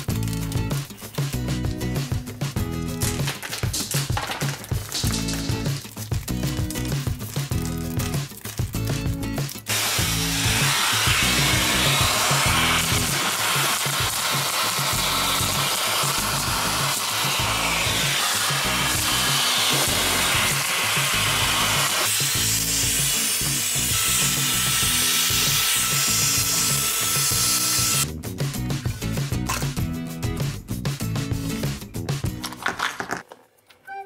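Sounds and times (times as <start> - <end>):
background music with steady beat: 0.0 - 32.6
small appliance motor blowing air: 9.7 - 28.0.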